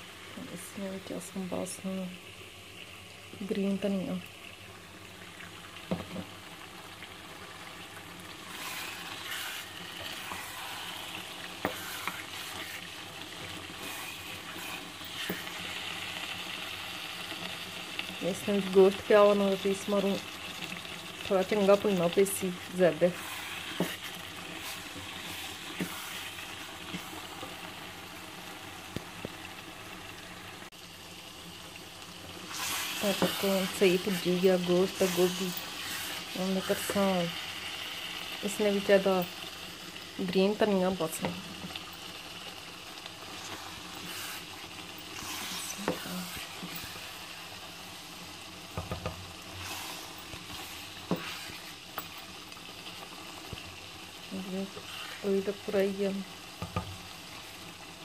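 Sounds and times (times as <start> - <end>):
curry sizzling in a pot: 0.0 - 58.0.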